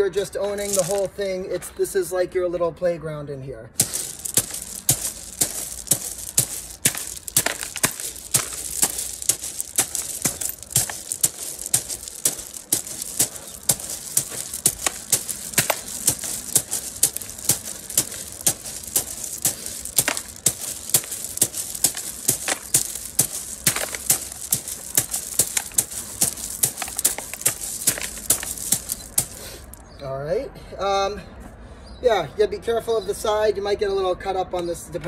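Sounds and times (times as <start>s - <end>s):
fingers striking gravel: 0.5s - 1.1s, 3.8s - 29.8s
stones clacking and rattling: 0.5s - 1.1s, 3.8s - 29.8s.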